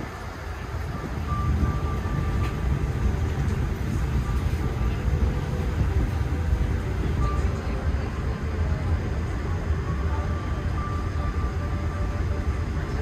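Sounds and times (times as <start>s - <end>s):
aircraft cabin rumble: 0.0s - 13.0s
faint high tone: 9.8s - 13.0s.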